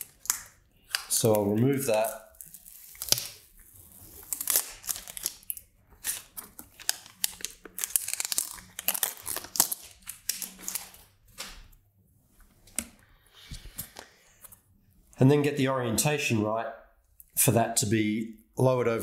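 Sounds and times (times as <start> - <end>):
plastic film peeling off: 0.0 - 11.6.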